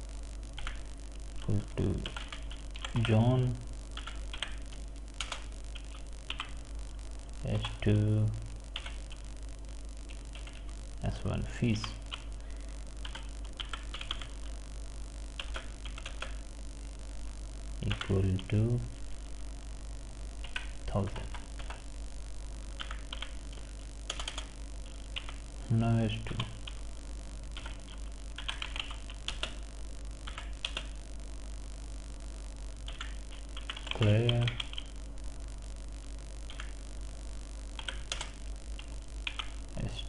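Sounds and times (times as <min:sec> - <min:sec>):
low steady hum: 0:00.0 - 0:40.0
computer keyboard typing: 0:00.6 - 0:00.8, 0:01.4 - 0:03.4, 0:04.0 - 0:06.6, 0:08.7 - 0:09.2, 0:10.1 - 0:10.6, 0:13.0 - 0:14.4, 0:15.4 - 0:16.4, 0:20.4 - 0:21.8, 0:22.8 - 0:25.4, 0:27.6 - 0:29.6, 0:30.2 - 0:31.0, 0:32.8 - 0:34.9, 0:36.5 - 0:36.8, 0:37.8 - 0:39.6.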